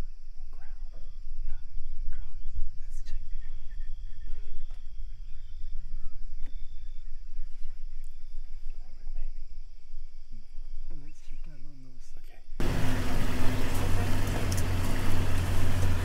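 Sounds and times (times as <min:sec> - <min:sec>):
insect chirring: 0:00.0 - 0:12.6.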